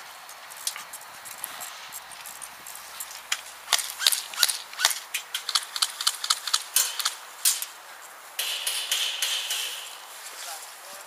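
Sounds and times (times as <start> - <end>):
airsoft guns firing: 3.6 - 7.8, 8.4 - 10.2.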